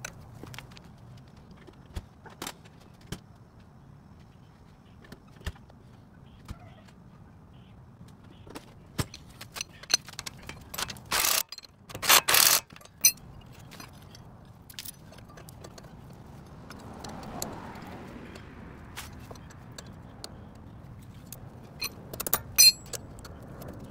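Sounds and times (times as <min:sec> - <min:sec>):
metal tools clinking and rattling: 0:09.0 - 0:17.2, 0:21.0 - 0:23.8.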